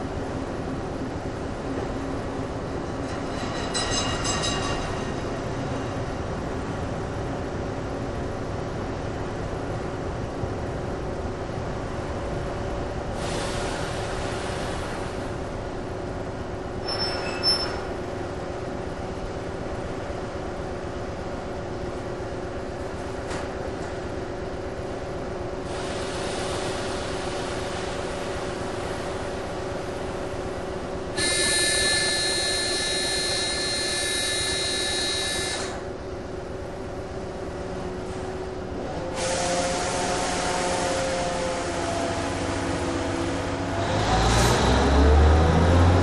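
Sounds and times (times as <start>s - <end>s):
train humming and buzzing: 0.0s - 46.0s
high multi-tone whine: 31.1s - 35.9s.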